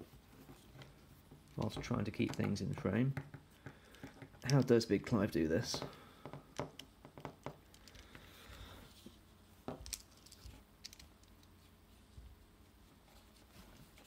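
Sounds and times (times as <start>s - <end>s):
small parts clicking and scraping: 7.6s - 9.1s, 9.7s - 11.6s.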